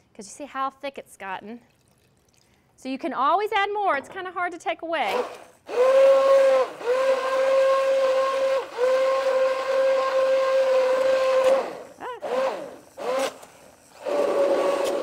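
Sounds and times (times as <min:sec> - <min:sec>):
immersion blender motor whine: 0:05.1 - 0:15.0.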